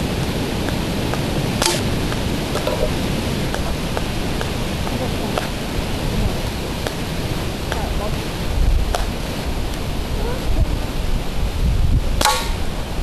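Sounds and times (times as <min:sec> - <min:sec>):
steady hiss: 0:00.0 - 0:13.0
bb gun shot crack: 0:01.6 - 0:01.9, 0:12.2 - 0:12.7.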